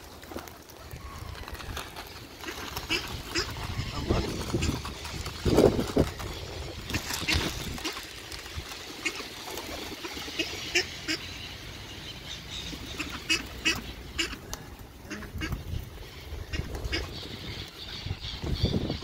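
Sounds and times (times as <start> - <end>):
pigeons flapping wings: 0.0 - 11.2, 12.7 - 17.8
ducks quacking: 2.4 - 5.7, 6.8 - 8.2, 8.9 - 19.0.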